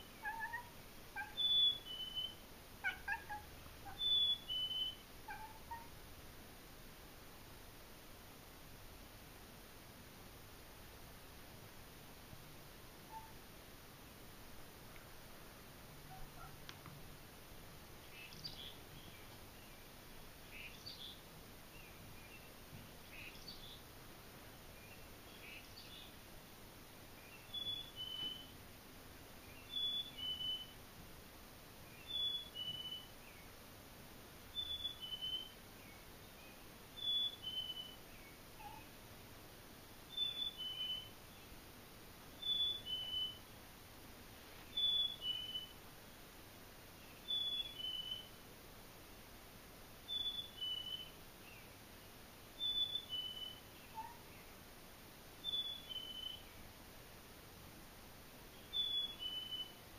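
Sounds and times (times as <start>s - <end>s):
chickadee two-note whistle song: 1.4s - 2.4s, 4.0s - 5.0s.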